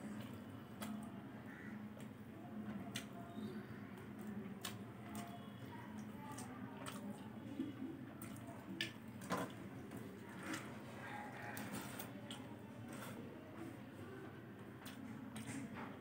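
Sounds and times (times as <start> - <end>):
wet chewing and lip-smacking: 0.0 - 1.1, 1.8 - 9.6, 14.8 - 15.8.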